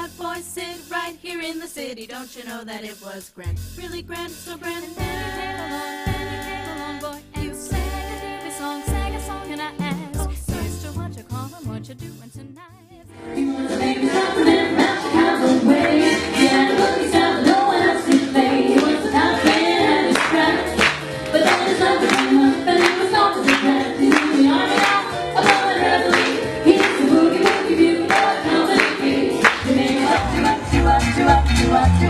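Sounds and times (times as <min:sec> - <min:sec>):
deep bass: 0:03.5 - 0:08.3, 0:08.9 - 0:12.6
women singing close harmony: 0:04.5 - 0:10.3, 0:13.2 - 0:32.0
steady beat: 0:14.2 - 0:31.3.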